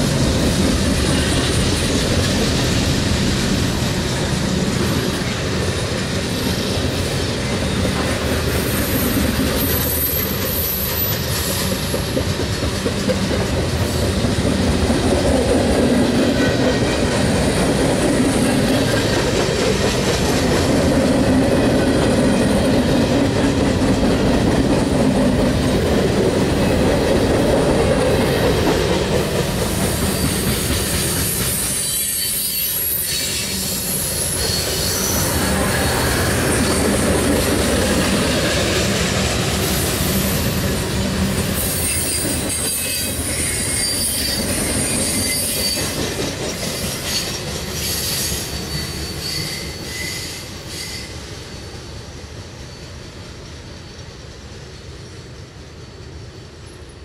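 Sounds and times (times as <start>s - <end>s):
train wheels squealing and clattering: 0.0s - 57.0s.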